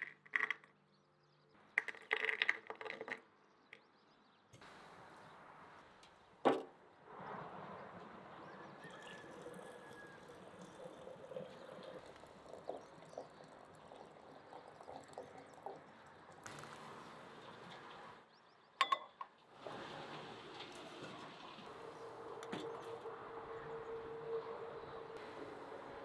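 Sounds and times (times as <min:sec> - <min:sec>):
water pouring into a teapot: 0:08.8 - 0:17.6.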